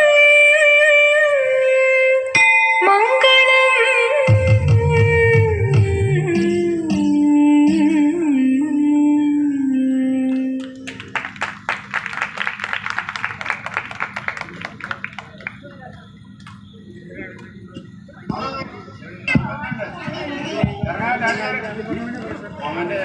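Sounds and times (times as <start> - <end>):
person singing a long note: 0.0 - 10.9
hand clapping: 10.3 - 16.6.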